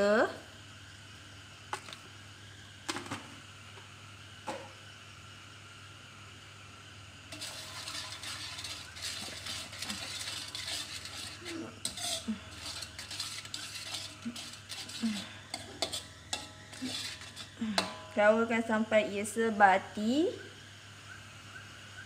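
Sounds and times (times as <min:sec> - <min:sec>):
sauce sizzling: 0:00.0 - 0:18.9
ladle scraping wok: 0:07.3 - 0:18.9
ladle clinking on pan: 0:15.6 - 0:18.2.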